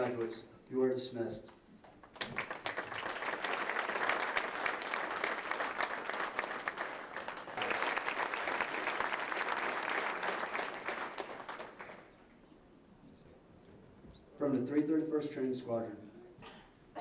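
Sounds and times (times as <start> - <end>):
audience applauding: 1.9 - 12.2.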